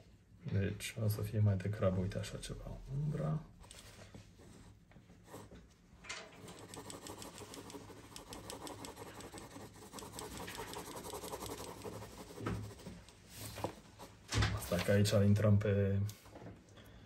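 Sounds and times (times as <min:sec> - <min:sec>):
pencil scratching on paper: 0:04.4 - 0:05.6, 0:06.4 - 0:14.2.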